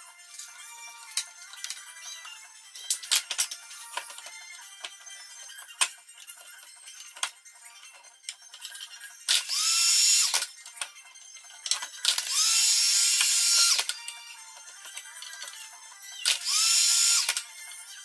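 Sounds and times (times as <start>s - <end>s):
cordless drill running: 9.4s - 10.4s, 12.2s - 13.9s, 16.4s - 17.4s.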